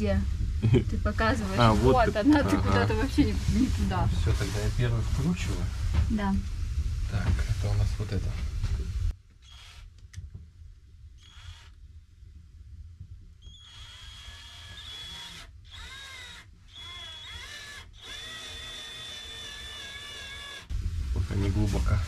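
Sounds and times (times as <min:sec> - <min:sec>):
cordless drill motor whining: 0:09.4 - 0:09.9, 0:11.2 - 0:11.8, 0:13.5 - 0:20.7.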